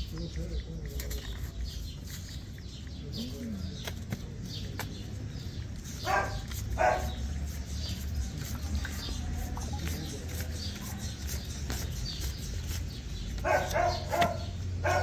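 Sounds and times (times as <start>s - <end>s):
dog barking: 6.0s - 7.2s, 13.4s - 15.0s.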